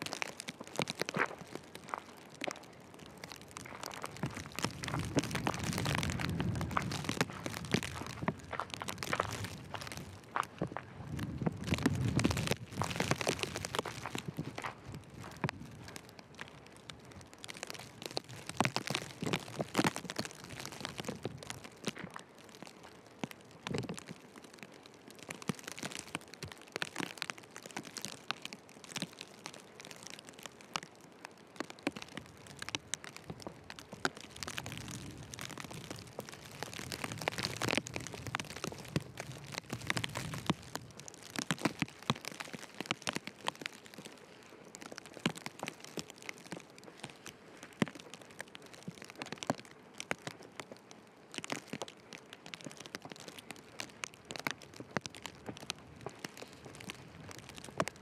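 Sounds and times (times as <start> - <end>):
footsteps crunching in snow: 0.0 - 23.0
low wind rumble: 2.8 - 21.7.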